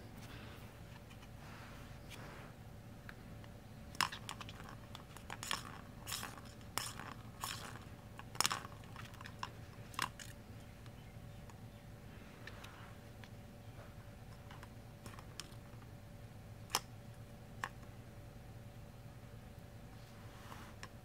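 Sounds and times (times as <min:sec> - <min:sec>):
plastic ball rattling in track toy: 0:04.0 - 0:10.4.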